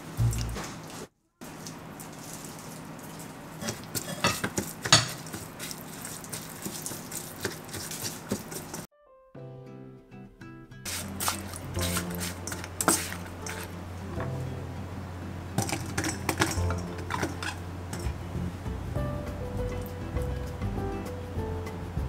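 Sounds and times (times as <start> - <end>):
utensils tapping cookware: 3.6 - 5.5, 10.9 - 14.3, 15.6 - 18.2.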